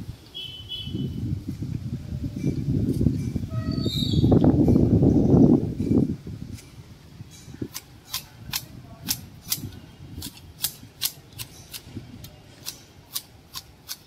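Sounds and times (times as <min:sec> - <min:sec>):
hedge shears snipping: 0:07.6 - 0:14.0.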